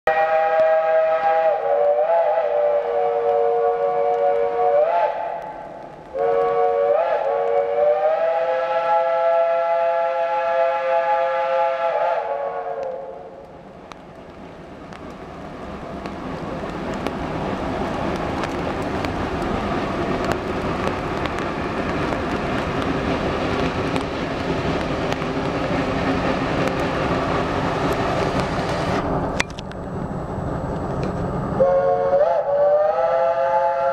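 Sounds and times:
steam locomotive chime whistle: 0:00.1 - 0:05.5, 0:06.2 - 0:13.3, 0:31.6 - 0:33.9
steam locomotive exhaust and running gear: 0:00.1 - 0:33.9.

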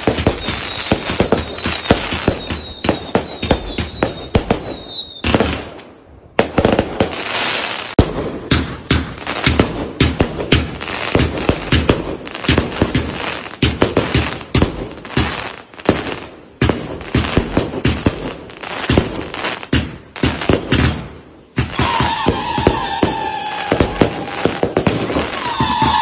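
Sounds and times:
firework whistle: 0:00.0 - 0:05.7, 0:21.6 - 0:26.0
fireworks bangs and crackles: 0:00.0 - 0:26.0.

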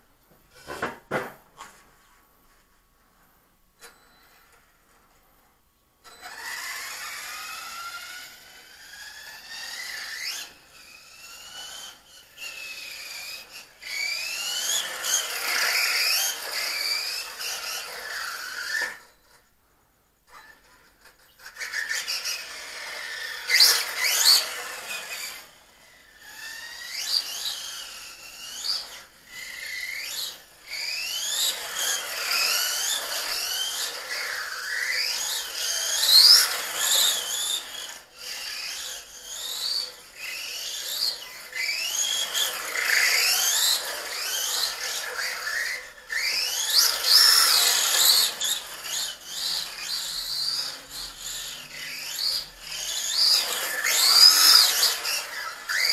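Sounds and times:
electric motor whining: 0:06.2 - 0:19.0.

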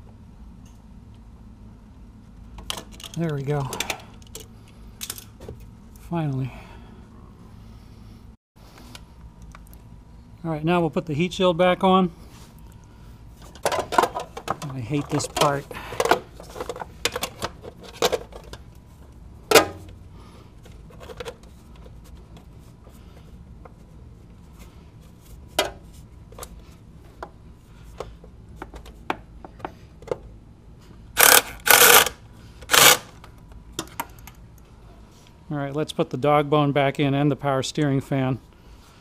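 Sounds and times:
ratchet clicking: 0:31.2 - 0:33.2.

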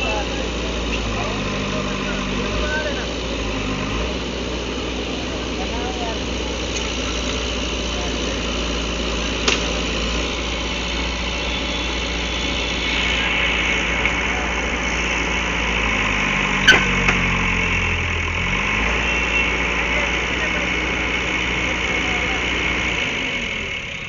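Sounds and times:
diesel engine under load: 0:00.0 - 0:24.0
loud crack: 0:09.3 - 0:10.0.

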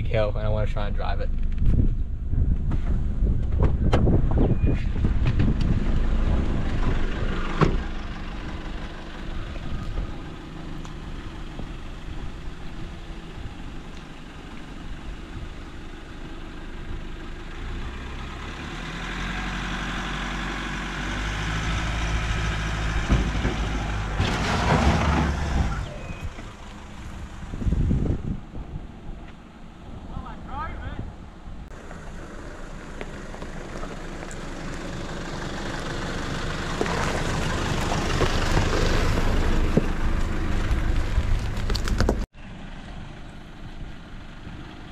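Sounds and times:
truck engine revving: 0:17.6 - 0:28.4
tyres spinning and throwing dirt: 0:21.7 - 0:26.7, 0:35.9 - 0:42.3.

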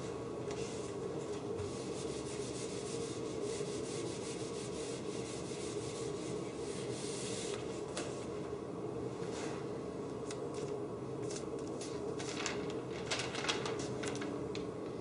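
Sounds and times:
eraser scrubbing whiteboard: 0:01.6 - 0:07.6.

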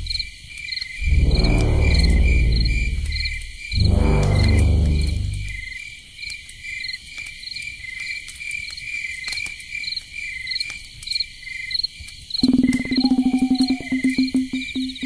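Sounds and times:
crickets chirping: 0:00.0 - 0:15.0
faint ticks: 0:12.0 - 0:15.0.

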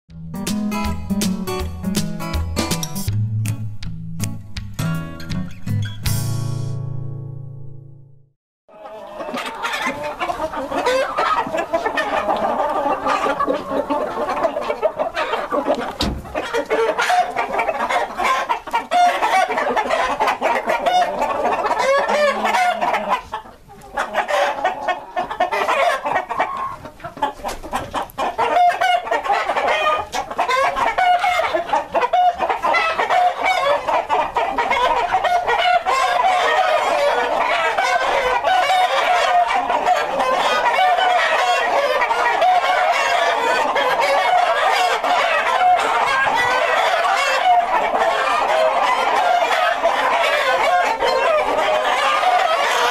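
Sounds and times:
roosters crowing: 0:08.7 - 0:23.3, 0:28.4 - 0:52.9
chickens clucking: 0:08.7 - 0:52.9.

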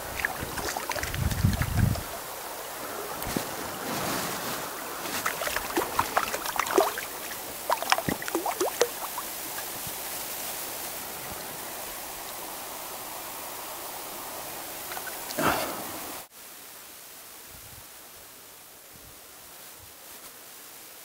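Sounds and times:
water splashing and dripping: 0:00.0 - 0:03.8, 0:04.8 - 0:11.2, 0:14.6 - 0:15.4
stream rushing: 0:00.0 - 0:16.3.

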